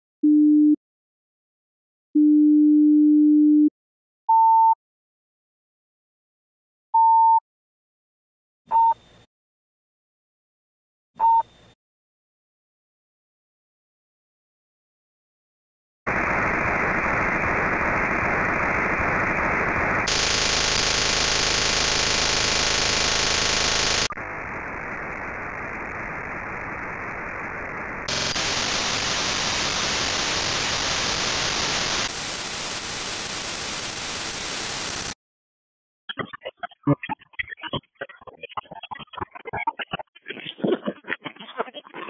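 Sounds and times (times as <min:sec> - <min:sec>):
choppy stuttering digital signal: 0:16.1 - 0:35.2, 0:36.1 - 0:42.0
harsh digital radio hiss: 0:16.1 - 0:35.2, 0:36.2 - 0:42.0.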